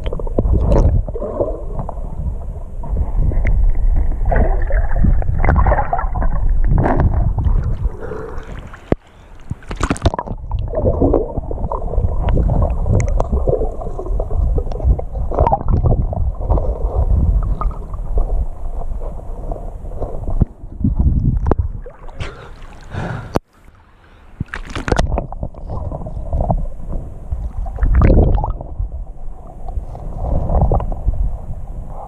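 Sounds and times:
muffled underwater river rushing: 0:00.0 - 0:32.0
splash: 0:04.2 - 0:14.1, 0:21.7 - 0:23.3, 0:24.4 - 0:25.8.

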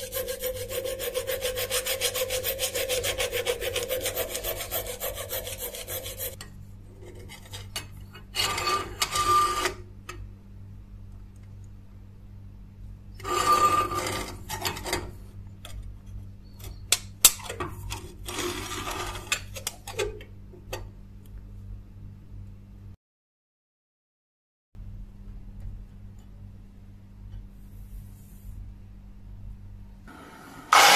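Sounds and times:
metal scraping: 0:00.0 - 0:06.4
steady low hum: 0:24.8 - 0:30.9.

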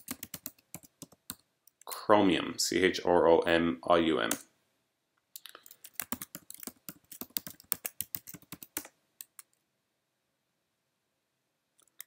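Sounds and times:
typing on computer keyboard: 0:00.0 - 0:01.4, 0:05.4 - 0:09.6.

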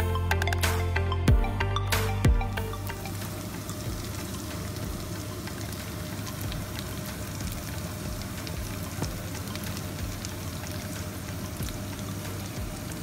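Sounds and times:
potatoes sizzling in hot oil: 0:02.7 - 0:13.0.

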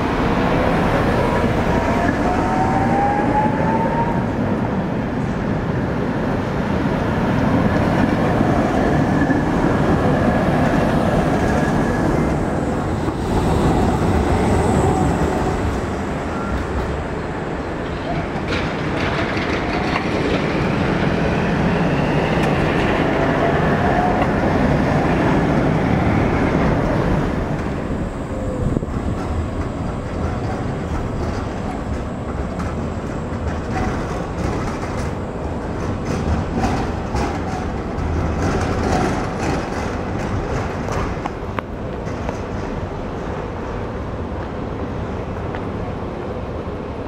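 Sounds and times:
trams rolling past: 0:00.0 - 0:47.0.

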